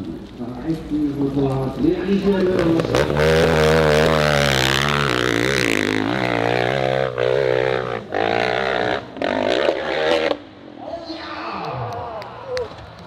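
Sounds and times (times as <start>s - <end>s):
dirt bike engine revving: 2.1s - 10.5s.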